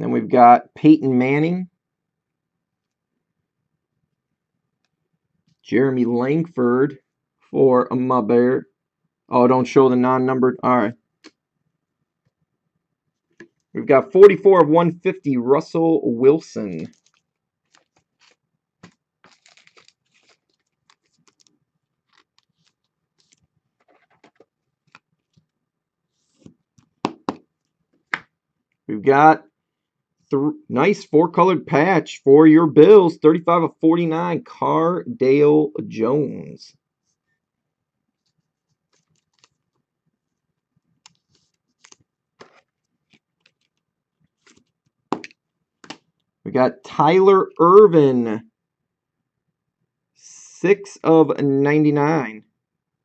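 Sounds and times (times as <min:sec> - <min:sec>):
plastic sleeve rustling: 0:16.7 - 0:27.0, 0:38.2 - 0:46.2
card sliding into plastic sleeve: 0:41.1 - 0:43.7.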